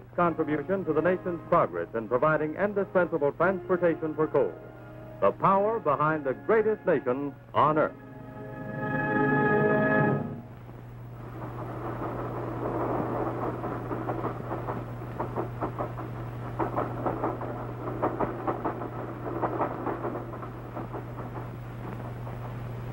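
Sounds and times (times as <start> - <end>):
steady low hum: 0.0 - 22.9
train wheels clattering over rail joints: 11.2 - 22.9.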